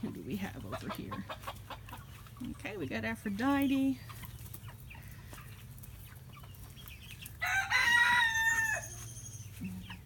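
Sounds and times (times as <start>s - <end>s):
chickens clucking: 0.0s - 10.0s
rooster crowing: 7.4s - 9.2s.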